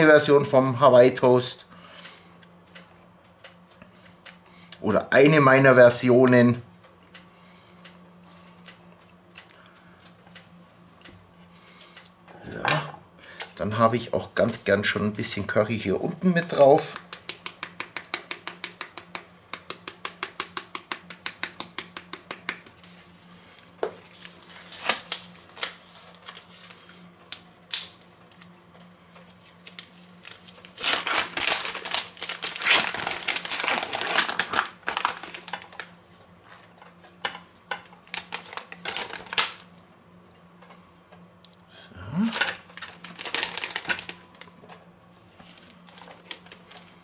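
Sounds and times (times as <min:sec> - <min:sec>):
plastic packaging crinkling: 0:29.3 - 0:35.9, 0:38.0 - 0:39.6, 0:42.3 - 0:44.6.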